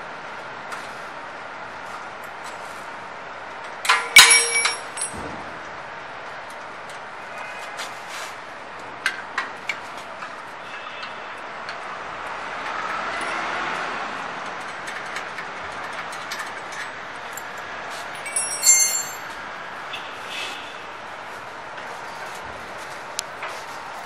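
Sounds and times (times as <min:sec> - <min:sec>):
steady background noise: 0:00.0 - 0:24.0
small metal hardware jangling: 0:03.8 - 0:05.3, 0:14.4 - 0:19.4.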